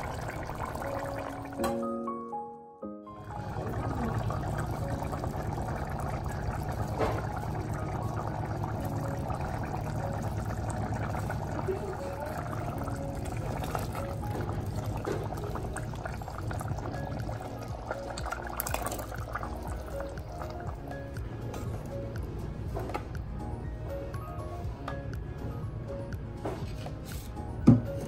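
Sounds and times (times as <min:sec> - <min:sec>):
curry bubbling in a pot: 0:00.0 - 0:01.6, 0:03.2 - 0:21.4.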